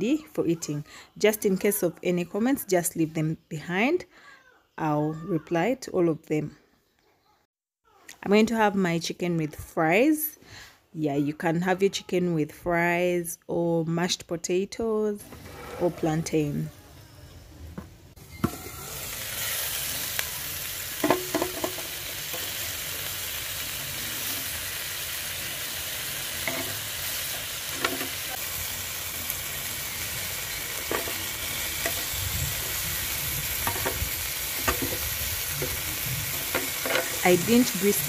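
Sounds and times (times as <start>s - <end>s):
chicken sizzling on grill pan: 18.4s - 38.0s
metal tongs clicking on pan: 26.5s - 26.8s.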